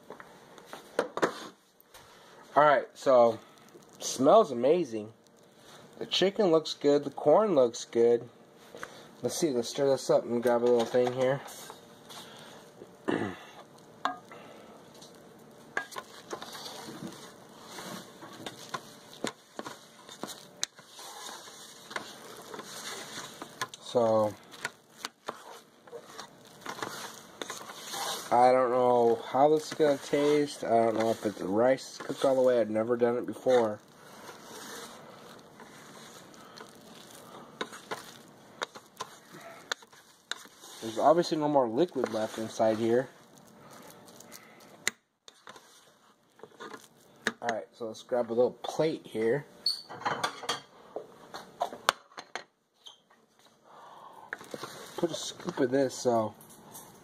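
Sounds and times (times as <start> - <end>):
spatula stirring rice: 3.1 - 13.0, 13.6 - 47.5, 54.2 - 56.3
wooden spoon scraping pot: 15.1 - 47.0, 54.3 - 56.2.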